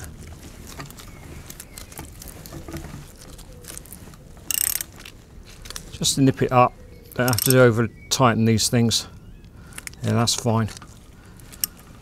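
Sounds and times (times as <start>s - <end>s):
metal tool clicks and taps: 7.2s - 7.6s.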